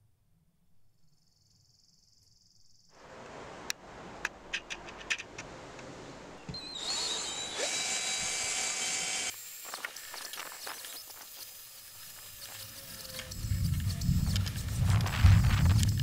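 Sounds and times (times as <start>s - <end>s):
drill whining: 6.5s - 14.4s
wire brush scratching metal: 7.0s - 16.0s.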